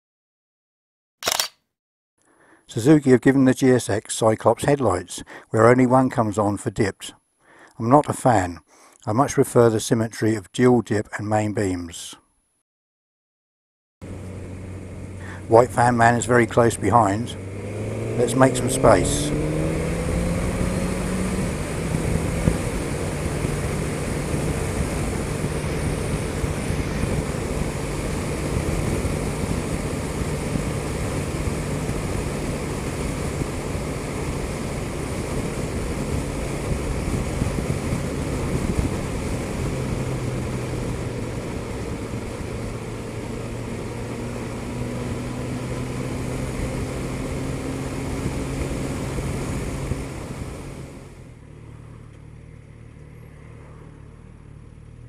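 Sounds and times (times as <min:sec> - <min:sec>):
motorcycle engine droning: 0:14.0 - 0:55.0
wind rush: 0:17.4 - 0:43.1.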